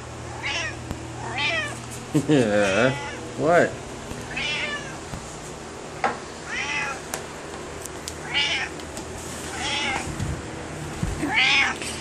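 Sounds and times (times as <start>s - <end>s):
cat meowing: 0.3s - 1.8s, 2.7s - 3.2s, 4.3s - 5.0s, 6.4s - 7.0s, 8.2s - 8.7s, 9.5s - 10.0s, 11.2s - 11.8s.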